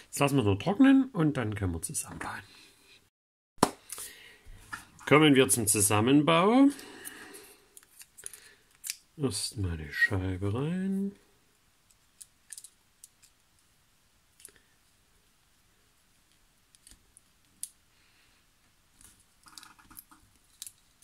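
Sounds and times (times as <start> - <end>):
plastic parts clicking: 11.9 - 13.4, 16.7 - 17.8.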